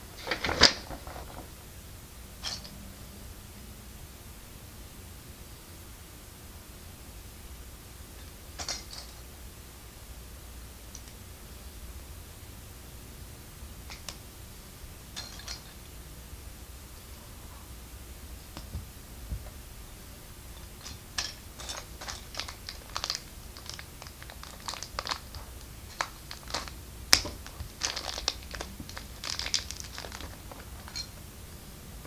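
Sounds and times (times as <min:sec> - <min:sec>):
plastic bricks clicking and rattling: 0:20.8 - 0:31.1.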